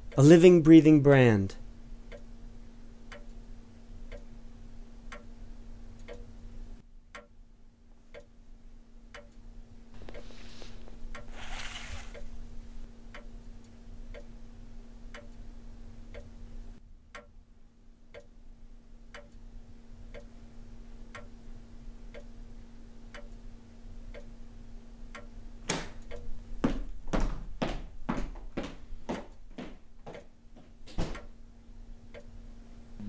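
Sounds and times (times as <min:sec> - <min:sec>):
low steady hum: 0:00.0 - 0:33.0
clock ticking: 0:02.0 - 0:02.3, 0:03.0 - 0:03.4, 0:04.1 - 0:04.4, 0:05.1 - 0:05.4, 0:06.0 - 0:06.3, 0:07.1 - 0:07.4, 0:09.1 - 0:09.4, 0:13.1 - 0:14.4, 0:15.1 - 0:15.5, 0:16.1 - 0:16.4, 0:17.1 - 0:17.3, 0:18.1 - 0:18.4, 0:19.1 - 0:20.4, 0:21.1 - 0:21.4, 0:23.1 - 0:23.4, 0:24.1 - 0:24.4, 0:25.1 - 0:25.4, 0:26.0 - 0:26.4, 0:30.1 - 0:30.3, 0:31.1 - 0:31.4.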